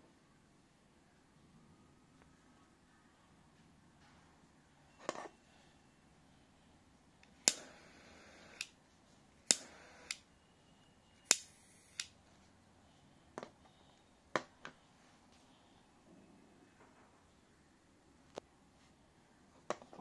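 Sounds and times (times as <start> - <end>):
gas hissing: 7.2 - 8.8, 9.4 - 10.3, 11.2 - 12.2
lighter button clicks: 7.3 - 8.8, 9.5 - 10.3, 11.2 - 12.2.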